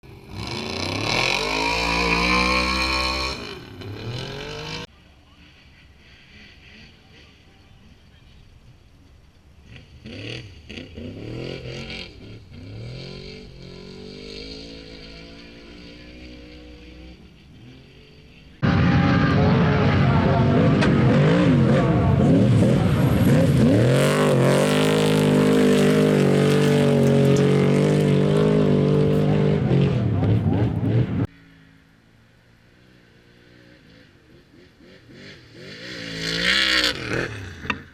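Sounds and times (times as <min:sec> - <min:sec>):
truck engine revving: 0:00.1 - 0:04.9, 0:09.6 - 0:31.3.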